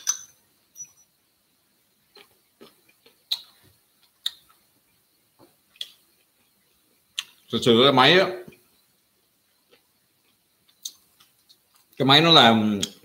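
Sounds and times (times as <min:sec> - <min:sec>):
person chewing food: 0:02.0 - 0:04.7, 0:05.4 - 0:07.5, 0:09.5 - 0:12.0.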